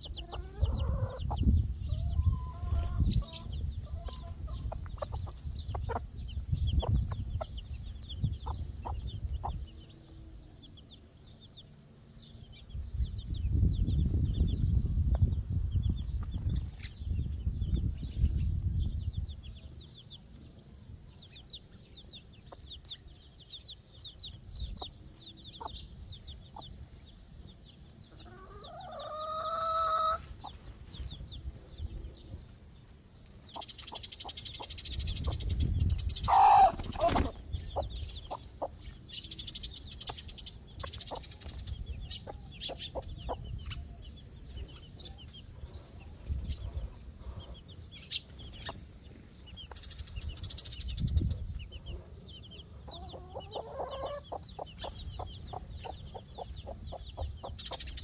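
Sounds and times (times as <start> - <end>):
hens clucking: 0.0 - 7.6, 28.2 - 30.6, 36.2 - 39.0, 52.7 - 58.0
small birds chirping: 0.0 - 58.0
hen squawk: 36.3 - 37.1.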